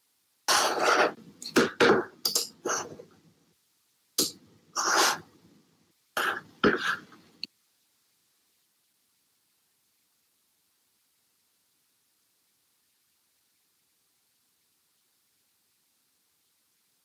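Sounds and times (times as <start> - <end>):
person coughing: 6.2 - 7.1.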